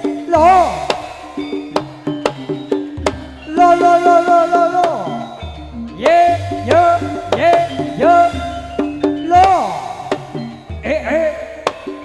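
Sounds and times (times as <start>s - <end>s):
percussion strokes: 0.0s - 12.0s
held melody note sliding down: 3.5s - 10.6s.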